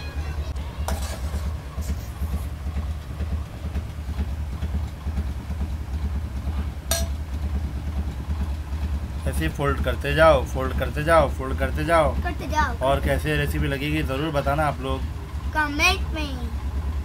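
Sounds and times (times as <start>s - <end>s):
steady low rumble: 0.0s - 17.0s
spoon clinking against metal pot: 6.9s - 7.2s.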